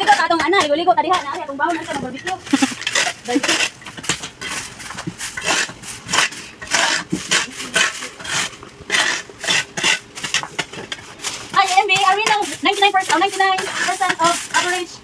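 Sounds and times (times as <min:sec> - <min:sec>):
shovel scraping soil and leaves: 0:01.2 - 0:15.0
broom sweeping: 0:11.0 - 0:15.0.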